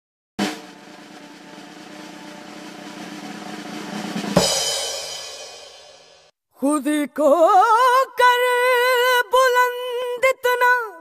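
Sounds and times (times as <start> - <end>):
intro music sting: 0.4 - 4.7
cymbal crash: 0.4 - 6.3.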